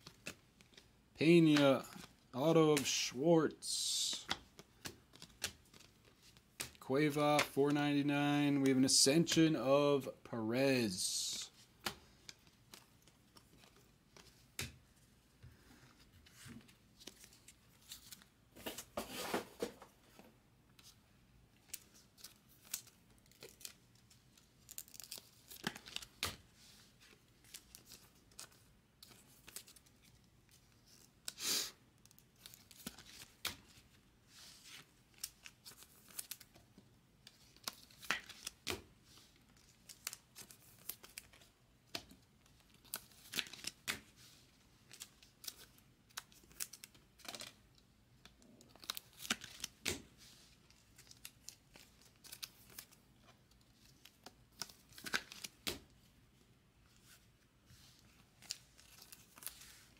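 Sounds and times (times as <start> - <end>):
cards scraping and rustling: 4.0 - 7.6, 15.8 - 21.0, 56.9 - 59.9.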